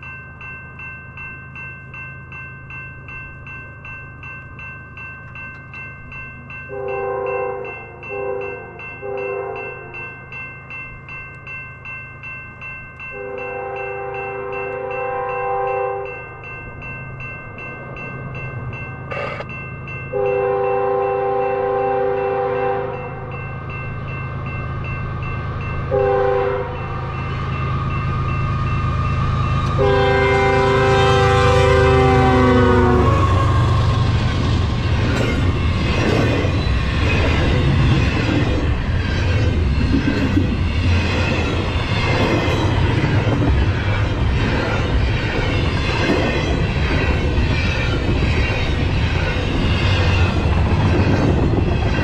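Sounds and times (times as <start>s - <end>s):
level-crossing bell ringing: 0.0s - 52.0s
locomotive air horn: 6.7s - 10.0s, 13.2s - 16.1s, 20.2s - 23.2s, 25.9s - 26.9s, 29.7s - 33.7s
locomotive rumble: 24.0s - 52.0s.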